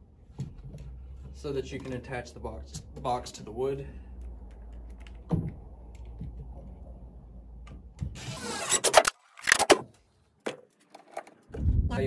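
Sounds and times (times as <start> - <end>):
cordless drill driving a screw: 8.2 - 9.2.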